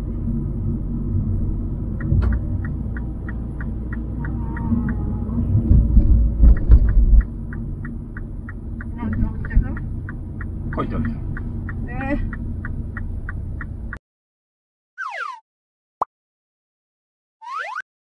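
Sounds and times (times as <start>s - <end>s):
car road and engine rumble: 0.0s - 14.0s
turn signal ticking: 1.4s - 14.0s.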